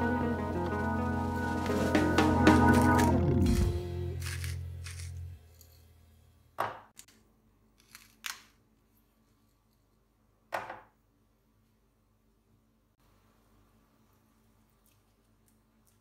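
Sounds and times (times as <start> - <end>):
background music: 0.0 - 4.7
pepper mill grinding: 3.4 - 5.8.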